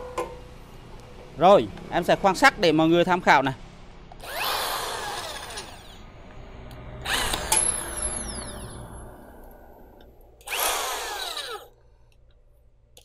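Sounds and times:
electric drill motor whining: 4.2s - 6.1s, 7.0s - 9.1s, 10.4s - 11.7s.

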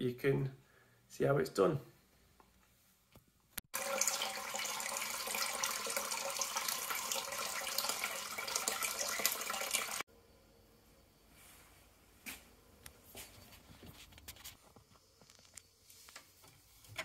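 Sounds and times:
tap water splashing into sink: 3.8s - 10.0s.

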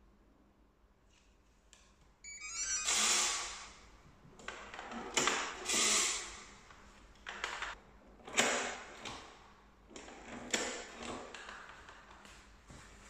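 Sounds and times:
electronic door lock beeps: 2.2s - 3.3s.

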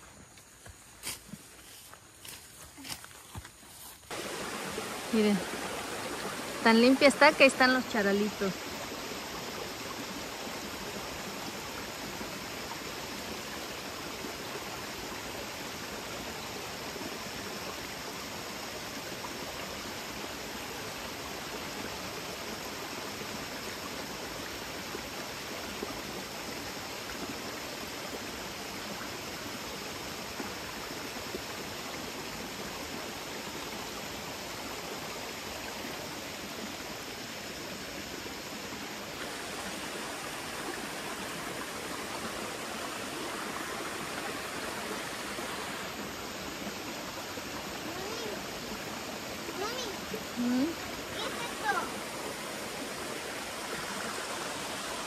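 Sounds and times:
creek water running: 0.0s - 55.0s.

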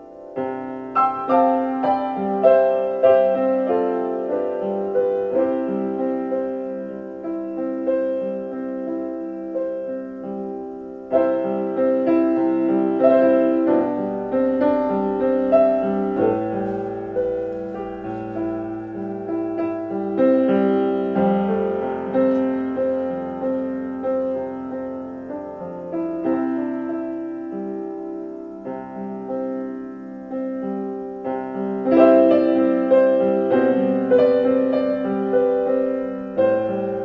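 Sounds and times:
solo piano playing: 0.0s - 37.0s.

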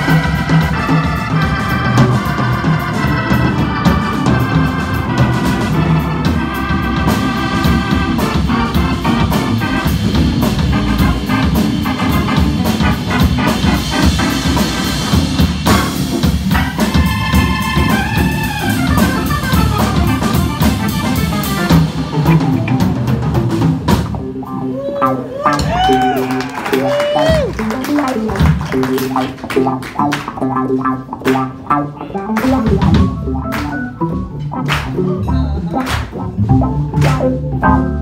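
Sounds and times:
organ chords: 0.0s - 25.4s, 27.5s - 38.0s
drums and cymbals: 0.0s - 38.0s.

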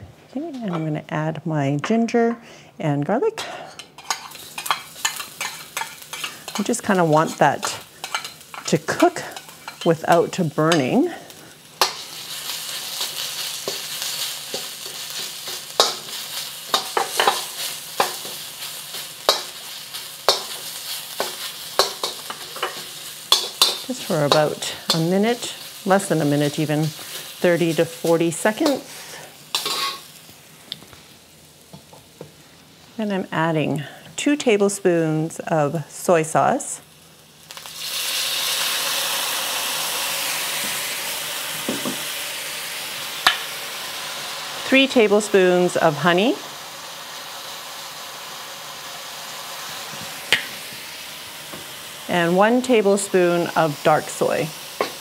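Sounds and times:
ginger and garlic sizzling in oil: 3.3s - 55.0s
metal spatula scraping wok: 3.4s - 30.2s.

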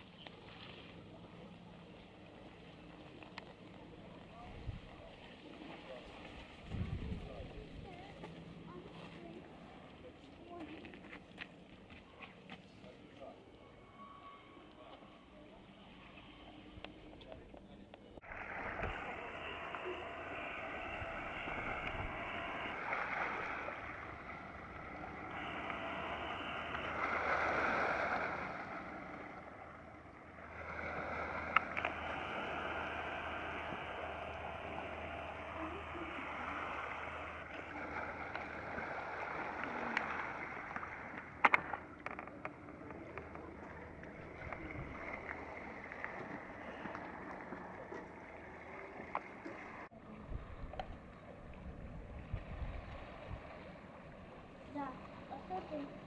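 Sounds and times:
waves washing on shingle: 18.2s - 49.9s.

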